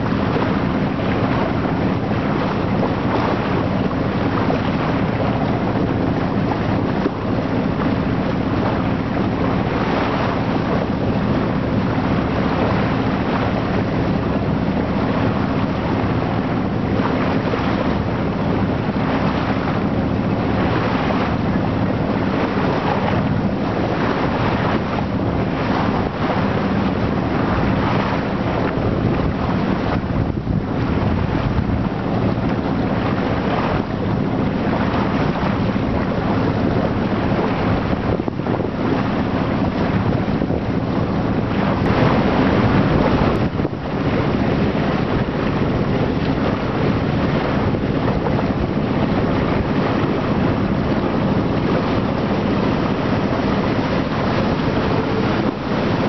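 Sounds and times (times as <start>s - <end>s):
boat engine running: 0.0s - 56.0s
water rushing past hull: 0.0s - 56.0s
wind buffeting microphone: 0.0s - 56.0s.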